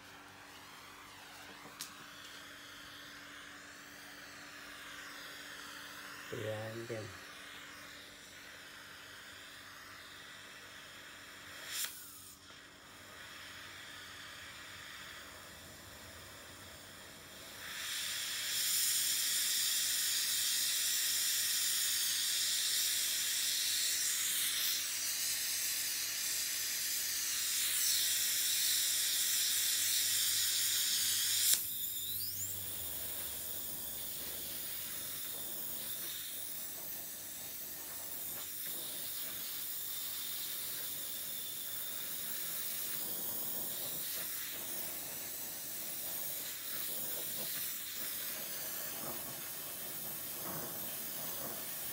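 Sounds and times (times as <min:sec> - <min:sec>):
torch flame hissing: 0:00.0 - 0:51.9.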